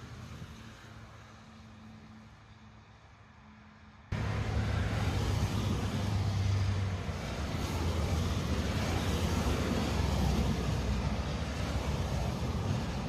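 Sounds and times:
wind noise on microphone: 4.2s - 13.0s.

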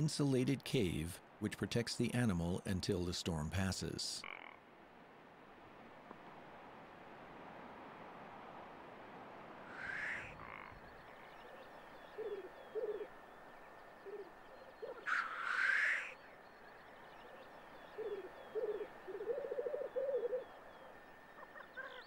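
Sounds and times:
grouse hissing calls: 9.6s - 10.7s, 12.2s - 13.1s, 14.0s - 16.2s, 18.0s - 20.5s
grouse bubbling rolling calls: 9.6s - 22.0s.

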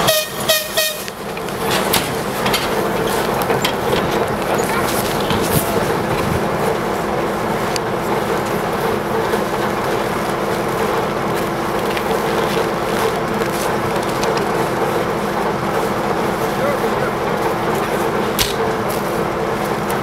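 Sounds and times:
diesel locomotive engine idling: 0.0s - 20.0s.

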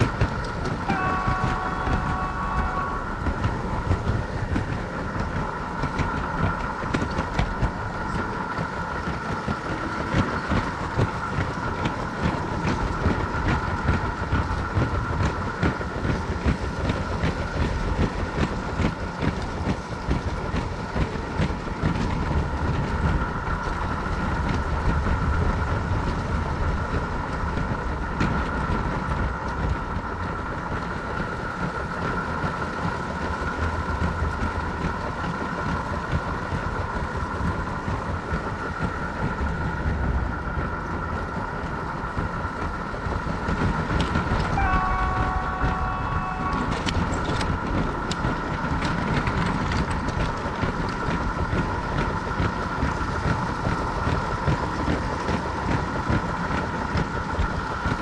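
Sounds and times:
toy train horn: 0.6s - 3.5s, 44.4s - 47.5s.

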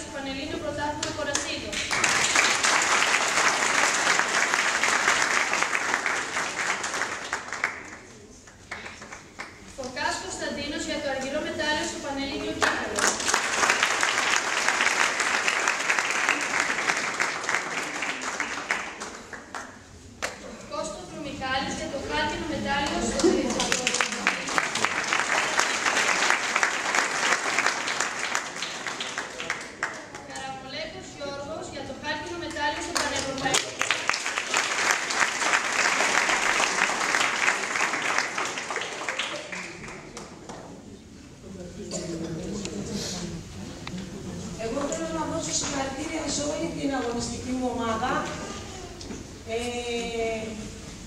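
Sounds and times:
audience applause: 1.8s - 9.6s, 12.9s - 19.7s, 23.2s - 30.3s, 33.4s - 40.6s.

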